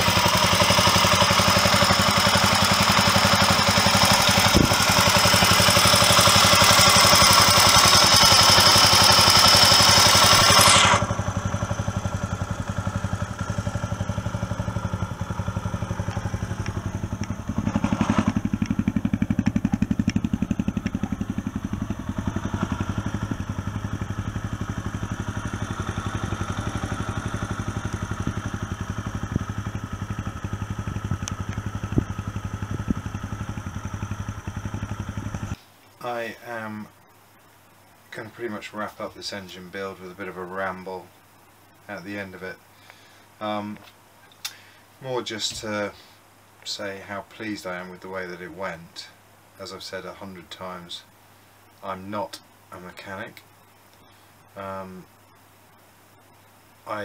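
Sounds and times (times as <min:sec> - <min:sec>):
motorcycle engine idling: 0:00.0 - 0:35.6
loud hiss: 0:00.0 - 0:57.0.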